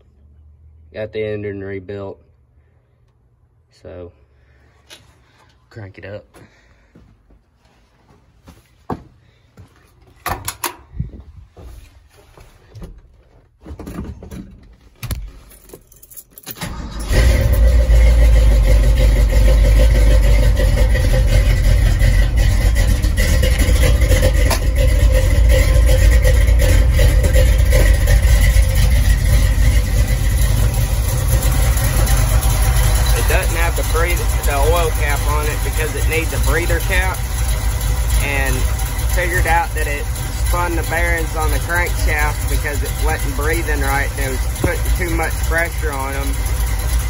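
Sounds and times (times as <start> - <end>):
knocks and clunks: 12.6 - 15.8, 22.4 - 30.6, 44.4 - 45.4
engine starting and idling: 16.4 - 47.0.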